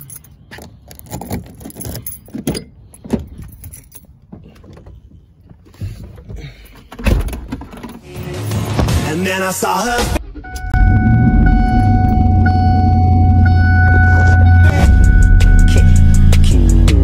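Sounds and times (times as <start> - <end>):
keys jangling: 0.0 - 4.7.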